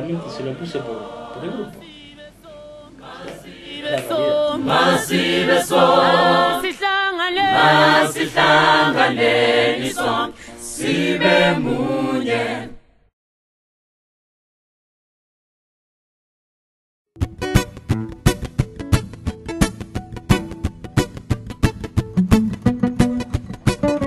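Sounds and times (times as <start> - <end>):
group singing unaccompanied: 0.0 - 12.9.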